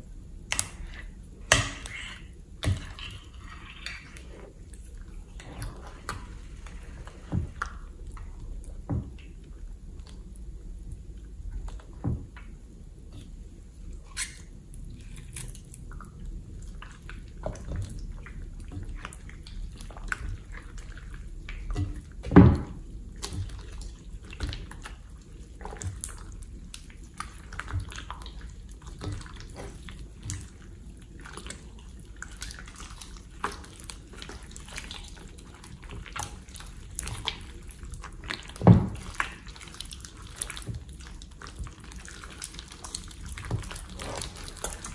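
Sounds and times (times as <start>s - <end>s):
hands squishing slime: 23.1s - 44.9s.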